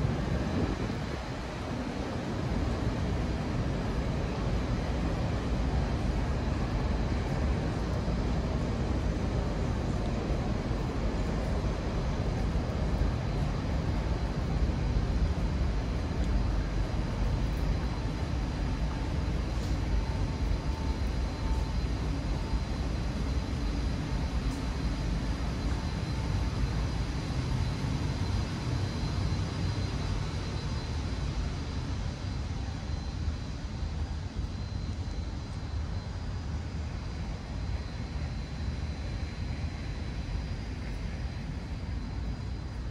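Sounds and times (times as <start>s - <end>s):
faint high whine: 0.0s - 42.9s.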